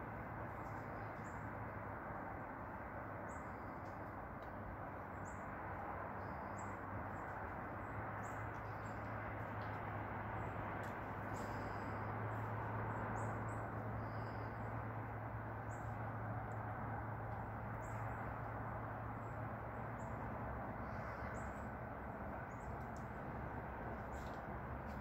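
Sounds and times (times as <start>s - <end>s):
low hum: 0.0s - 25.0s
small birds chirping: 0.5s - 1.7s, 2.3s - 25.0s.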